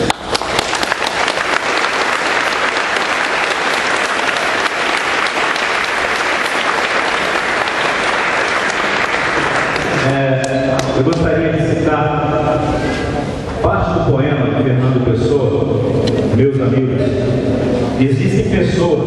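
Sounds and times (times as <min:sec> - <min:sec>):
crowd applauding: 0:00.0 - 0:11.2.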